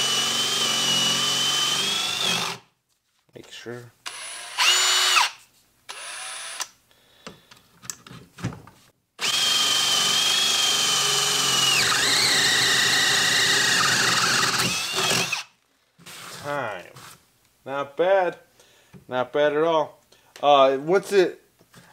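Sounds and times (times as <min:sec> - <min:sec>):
cordless drill whining: 0:00.0 - 0:02.6, 0:04.1 - 0:06.7, 0:09.2 - 0:15.5.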